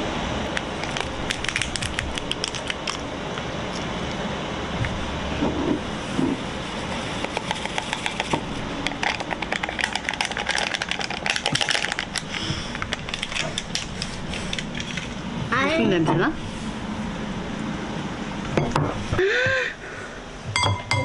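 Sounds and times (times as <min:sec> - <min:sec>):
paper sachet crinkling: 0:00.7 - 0:03.1, 0:08.1 - 0:15.2.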